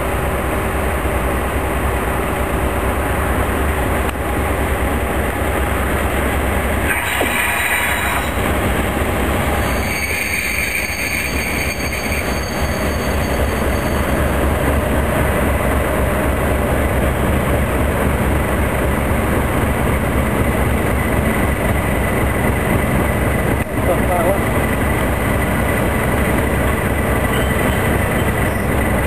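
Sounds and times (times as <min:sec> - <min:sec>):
diesel locomotive engine rumble: 0:00.0 - 0:29.0
high-pitched train squeal: 0:06.8 - 0:14.9, 0:27.1 - 0:29.0.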